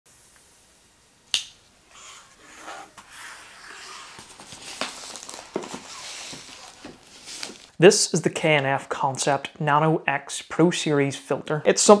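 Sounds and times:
shrink-wrap crinkling: 3.5s - 7.8s.

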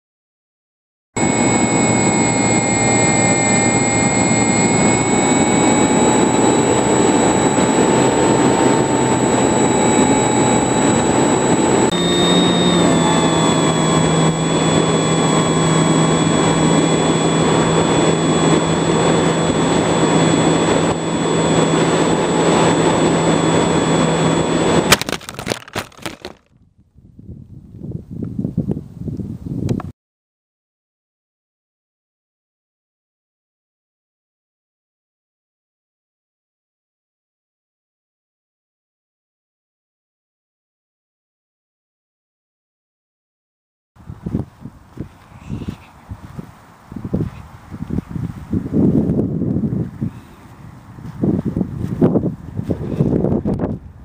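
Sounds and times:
model airplane motor whine: 1.2s - 26.4s, 44.0s - 53.8s
plane crashing into ground: 1.2s - 26.4s.

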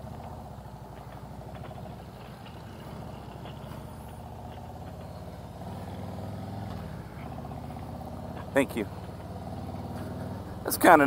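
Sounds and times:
motorcycle engine pulsing exhaust: 0.0s - 11.0s.

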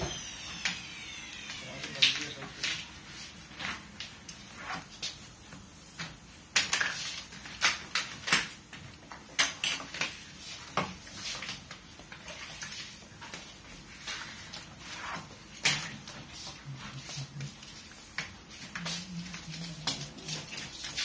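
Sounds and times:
plastic film crackling: 6.0s - 21.0s.

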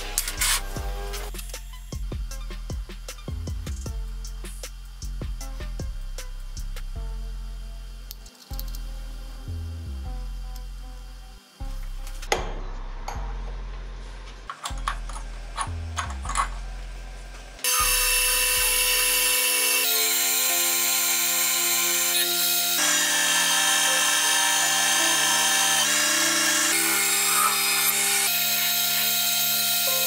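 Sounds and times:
metal lathe cutting whine: 17.7s - 30.0s.

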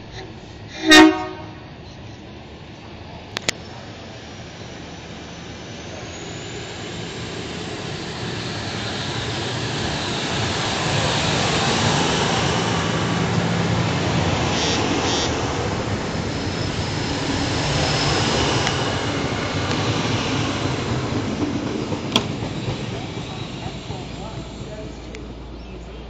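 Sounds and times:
electric train passing: 0.1s - 26.0s.

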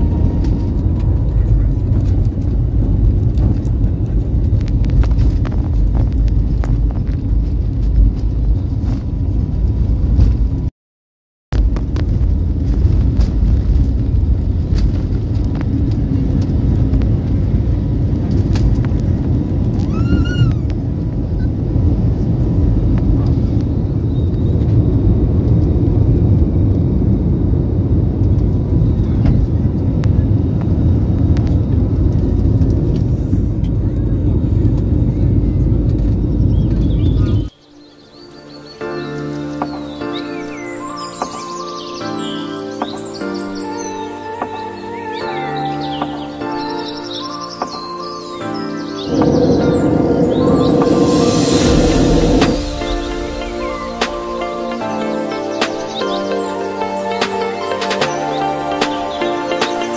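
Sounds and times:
jet engines rumbling: 0.0s - 10.7s, 11.6s - 37.7s, 48.8s - 59.9s.

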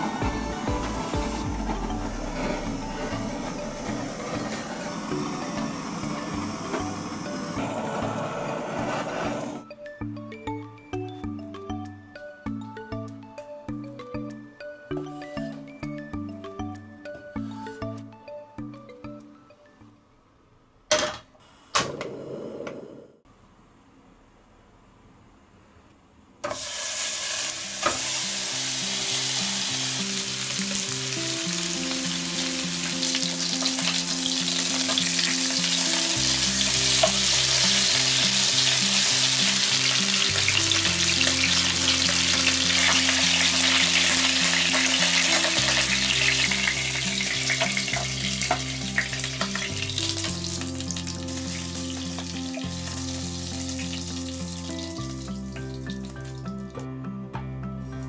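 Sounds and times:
pork sizzling in frying pan: 26.5s - 56.6s.

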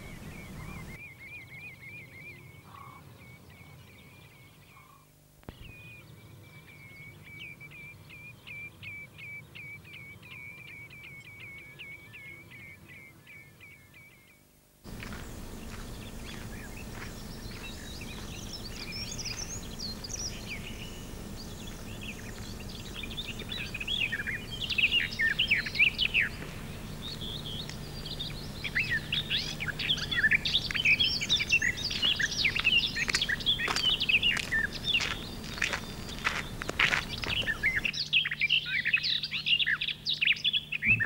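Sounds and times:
faint low hum: 0.0s - 41.0s
outdoor background noise: 0.0s - 41.0s
songbirds chirping and trilling: 0.0s - 41.0s.

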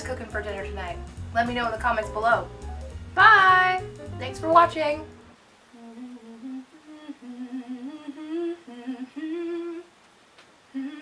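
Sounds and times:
woman humming: 5.7s - 10.0s, 10.7s - 11.0s.

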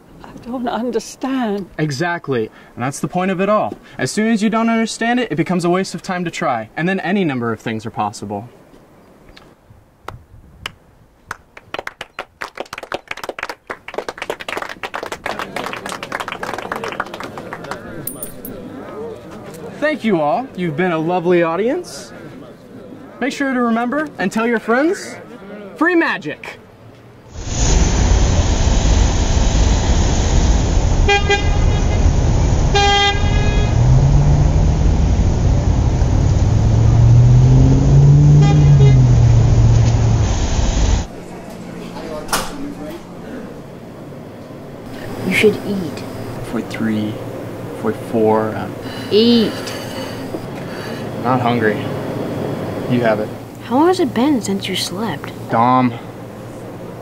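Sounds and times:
crowd clapping: 10.6s - 18.5s
passing cars rumbling: 26.7s - 41.2s, 41.8s - 53.6s
low hum: 27.3s - 53.6s
car horn toots: 31.0s - 32.0s, 32.7s - 34.0s, 37.4s - 39.5s.

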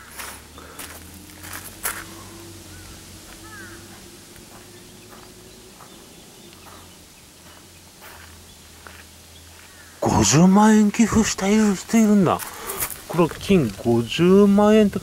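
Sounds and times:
faint steady hum: 0.0s - 15.0s
faint bird chirps: 1.5s - 10.0s.

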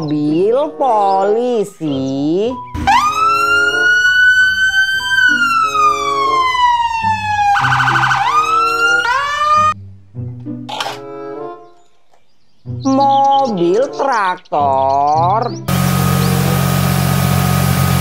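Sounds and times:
police siren wailing: 2.8s - 9.8s.

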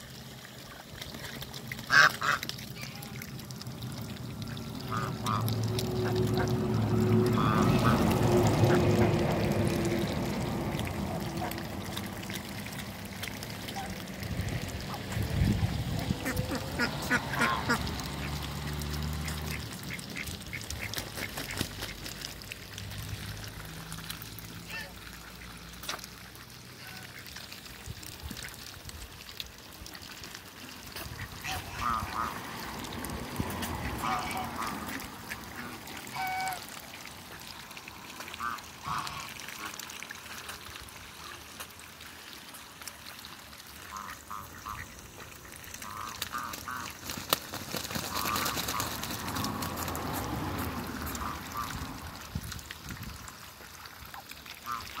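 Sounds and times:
bills dabbling in water: 0.0s - 55.0s
ducks quacking: 1.9s - 3.2s, 4.5s - 9.3s, 15.9s - 18.4s, 31.0s - 32.4s, 33.6s - 36.7s, 38.4s - 39.8s, 43.9s - 47.0s, 48.0s - 49.5s, 51.0s - 51.9s, 54.6s - 55.0s
geese honking: 16.2s - 17.8s, 33.9s - 36.6s, 54.6s - 55.0s.

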